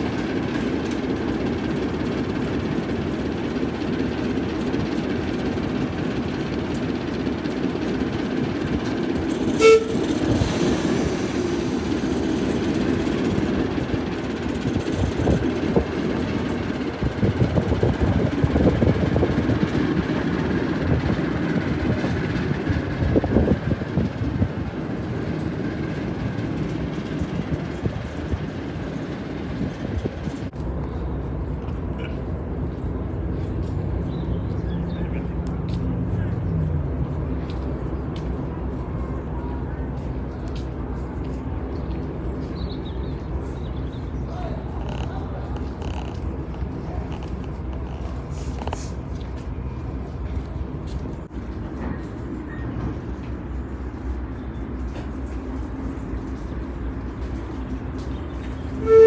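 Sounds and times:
diesel locomotive engine rumble: 0.0 - 59.0
locomotive horn toot: 9.5 - 10.4, 58.8 - 59.0.

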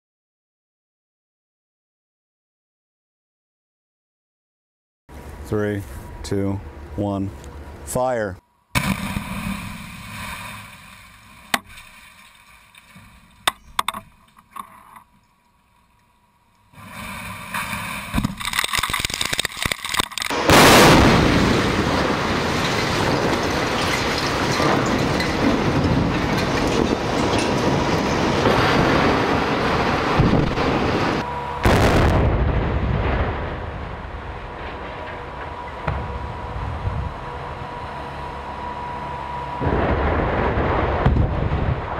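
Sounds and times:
crackle of charges: 8.7 - 41.9
blast cracks: 8.8 - 11.3, 16.8 - 37.2, 39.6 - 41.9
rumble of structures collapsing: 8.8 - 13.5, 16.8 - 41.9.

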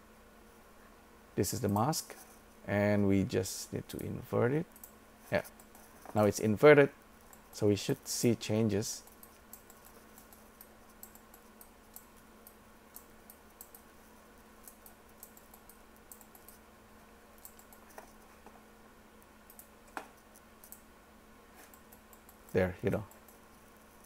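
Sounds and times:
low steady hum: 0.0 - 24.0
computer keyboard clicking: 9.1 - 13.8, 14.6 - 16.6, 17.4 - 18.1.

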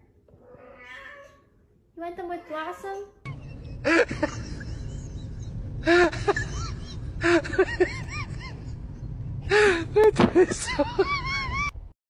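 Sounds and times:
steady low rumble: 3.3 - 11.9.

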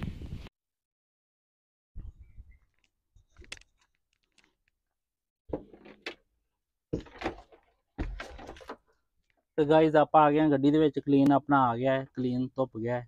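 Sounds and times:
wires clicking and rattling: 2.7 - 4.8
wires rustling and scraping: 2.7 - 4.8.

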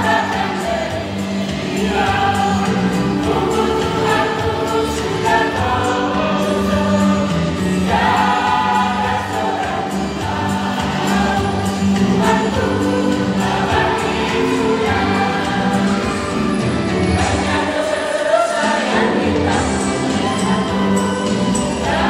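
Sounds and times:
choir singing in parts: 0.0 - 22.0.

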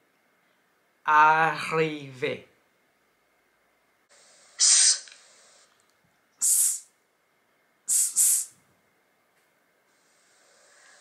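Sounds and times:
person making hissing sss sounds: 4.1 - 5.7, 6.4 - 7.0, 7.9 - 8.6, 9.9 - 11.0.

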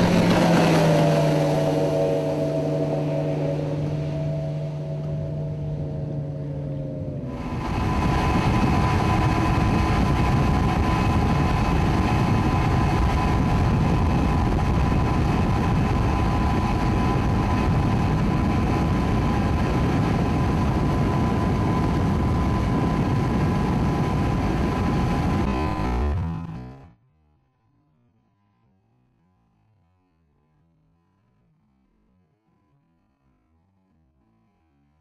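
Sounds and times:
rush of wind and water: 0.0 - 25.5
outboard motor whining: 0.0 - 26.9.

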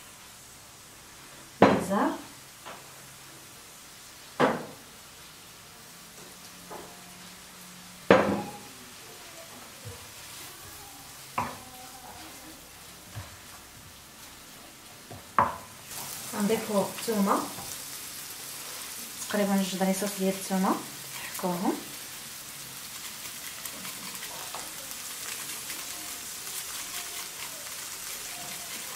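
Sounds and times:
onions sizzling in a frying pan: 0.0 - 28.9
wooden spoon knocking on pan: 4.4 - 4.8, 8.1 - 8.6, 11.4 - 11.6, 15.1 - 15.7.

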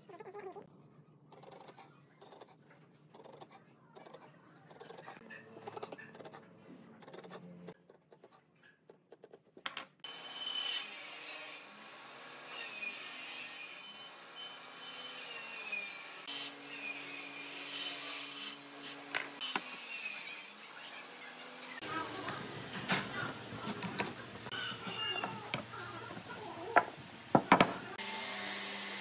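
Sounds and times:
pencil scratching on wood: 1.4 - 9.6.

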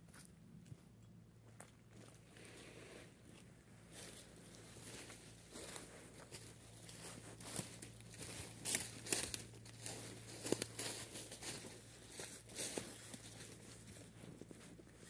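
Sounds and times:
footsteps crunching dry leaves: 3.8 - 15.0.

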